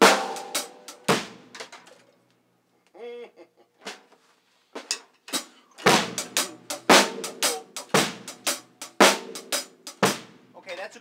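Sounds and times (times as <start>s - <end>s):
drum kit shuffle groove: 0.0s - 1.9s, 4.8s - 10.5s.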